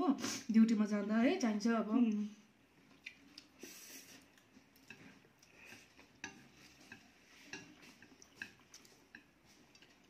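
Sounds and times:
chopsticks clicking on ceramic plates: 4.7 - 10.0.

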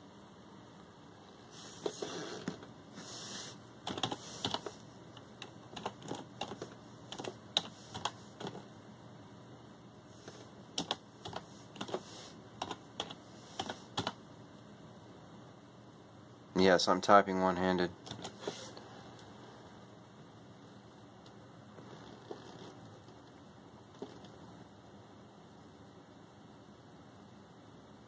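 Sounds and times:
computer keyboard keystrokes: 3.9 - 8.6, 10.8 - 12.0, 12.6 - 14.2, 18.0 - 18.4.

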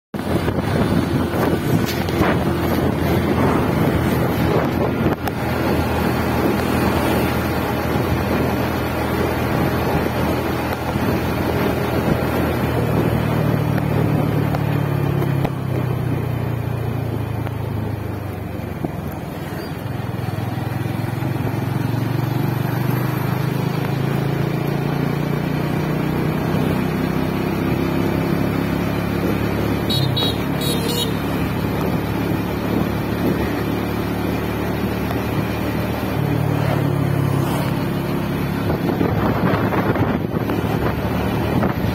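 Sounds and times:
wind rushing over microphone: 0.2 - 20.2, 31.4 - 41.9
motorcycle engine running: 0.2 - 41.9.

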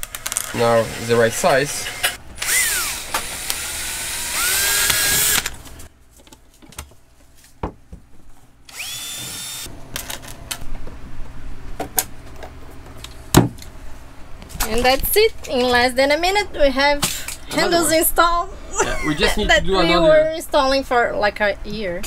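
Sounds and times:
cordless drill drilling wood: 1.7 - 5.6, 8.7 - 9.7.

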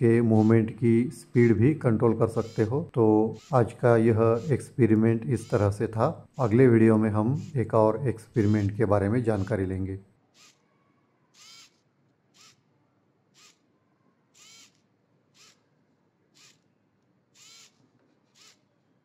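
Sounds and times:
micro servo whirring: 10.4 - 10.6, 11.3 - 12.6, 13.3 - 13.6, 14.3 - 15.6, 16.3 - 16.7, 17.3 - 18.7.

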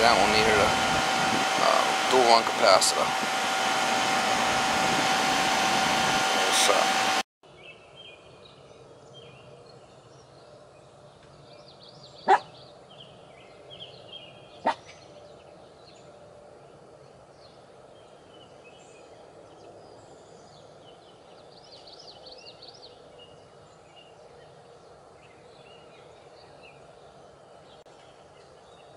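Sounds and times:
small birds chirping: 7.5 - 28.9.

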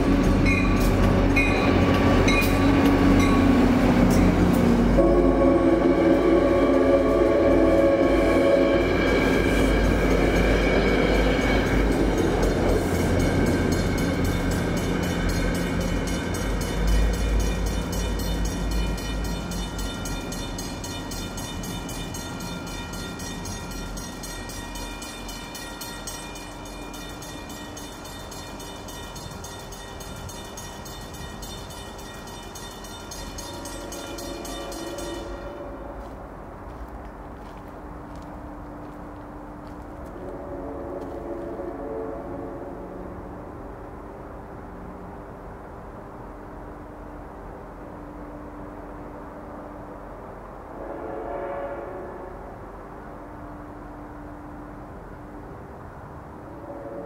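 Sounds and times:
train horn chord: 0.0 - 20.9, 33.2 - 36.4, 40.1 - 43.3, 50.7 - 52.6, 56.5 - 57.0
train wheels rumbling on rails: 0.0 - 57.0.

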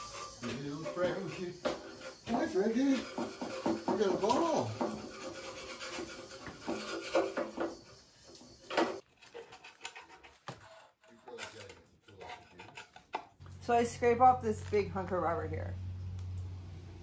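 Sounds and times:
hand scraper scraping metal: 0.0 - 13.2.

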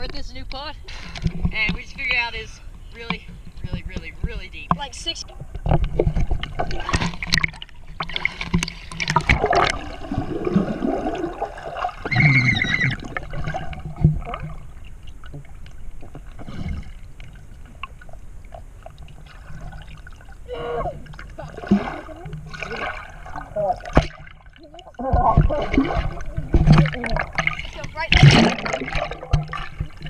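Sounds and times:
underwater knocks: 3.0 - 16.3, 21.0 - 30.0
muffled underwater gurgling: 8.6 - 14.8, 19.2 - 30.0
water splashing at surface: 19.0 - 30.0.

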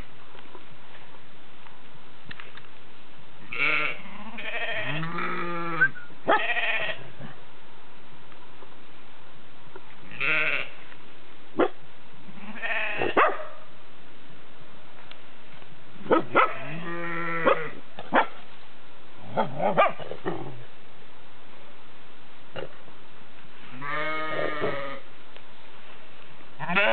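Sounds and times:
sheep bleating: 3.5 - 7.1, 10.1 - 10.8, 16.5 - 17.8, 23.7 - 25.1, 26.6 - 26.9
small dog yapping: 16.1 - 16.7.

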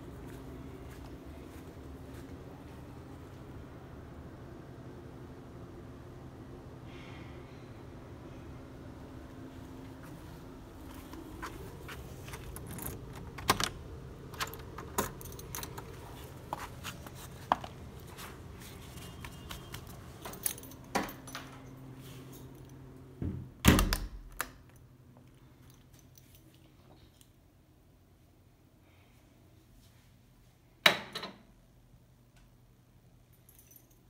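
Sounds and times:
low background hum: 0.0 - 34.0
keys jangling: 11.4 - 18.1, 18.7 - 22.8, 33.4 - 34.0.

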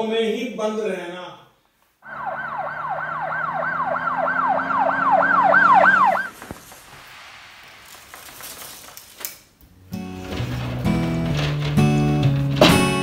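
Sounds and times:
siren yelping: 2.0 - 6.4
faint hiss: 6.2 - 9.7.

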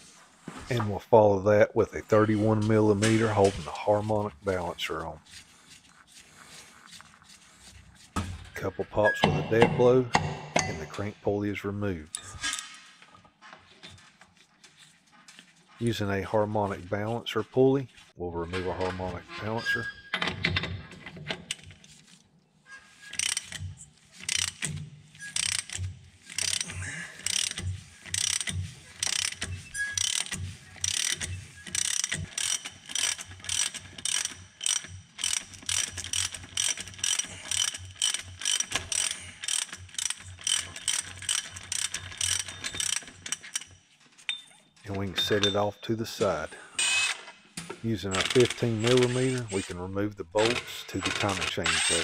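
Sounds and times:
ratchet wrench clicking: 23.1 - 43.7, 48.1 - 49.6.

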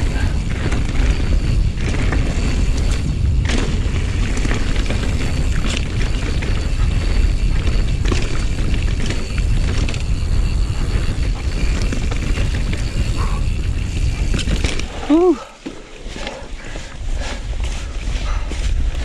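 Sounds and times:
tyres rolling over dirt: 0.0 - 16.5
bike rattling clicks and knocks: 0.0 - 19.0
wind buffeting microphone: 0.0 - 19.0.

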